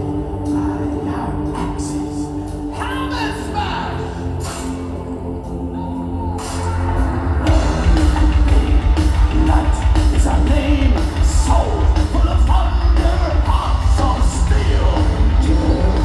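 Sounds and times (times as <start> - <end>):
person singing: 0.0 - 16.0
heavy metal band playing live: 6.5 - 16.0.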